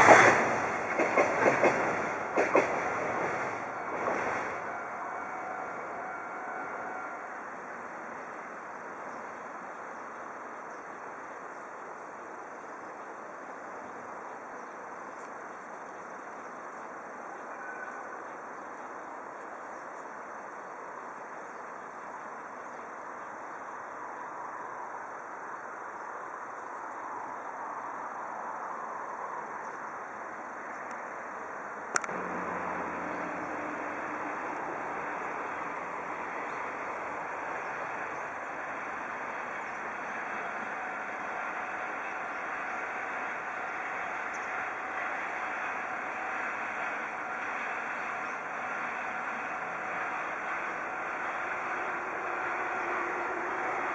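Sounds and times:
distant diesel train rumble: 0.0s - 53.9s
low engine hum: 32.0s - 53.9s.

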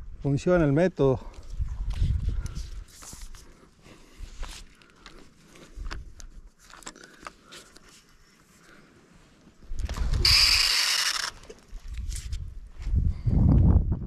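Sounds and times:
fishing reel spool whirring: 10.1s - 11.5s.

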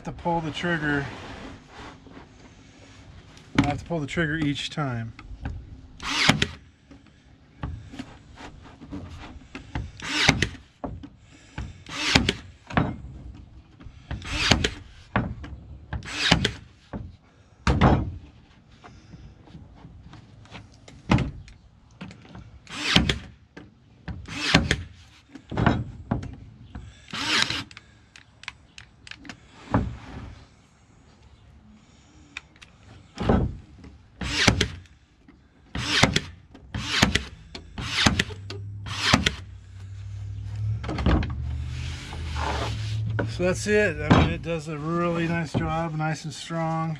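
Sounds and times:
nail gun shots into wood: 12.0s - 12.5s, 22.7s - 23.3s, 24.3s - 24.9s, 34.2s - 34.8s, 35.8s - 39.4s.

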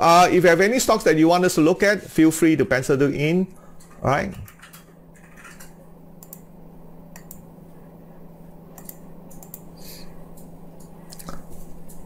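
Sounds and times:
steady low hum: 0.0s - 12.0s
computer keyboard clicks: 8.8s - 9.7s.

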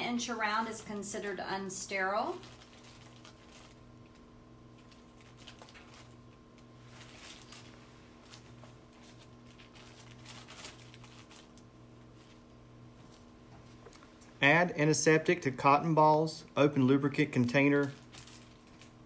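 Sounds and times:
low electrical hum: 0.0s - 19.0s
paper and plastic crinkling: 2.3s - 4.2s, 4.8s - 14.0s, 17.3s - 19.0s.

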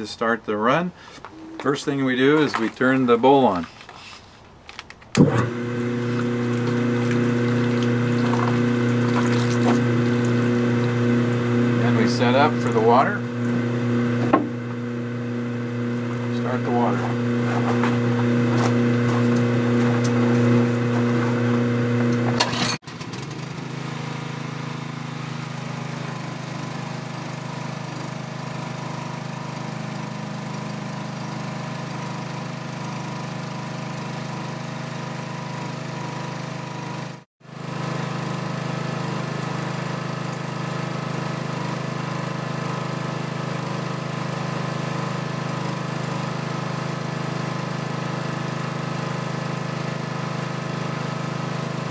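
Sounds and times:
centrifuge humming: 1.1s - 3.1s, 5.1s - 22.7s
engine-driven water pump: 1.9s - 4.2s, 5.1s - 51.9s
water feeding through bowl: 6.0s - 11.0s.

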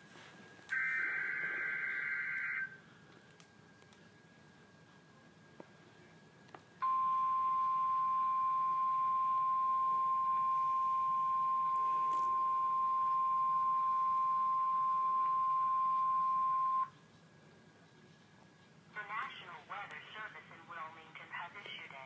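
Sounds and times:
steady alarm beep: 0.7s - 2.8s, 6.8s - 16.9s.

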